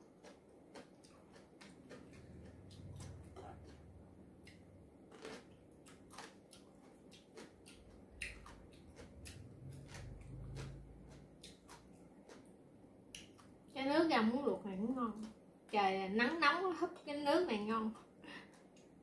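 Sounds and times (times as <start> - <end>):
chewing: 0.0 - 13.6.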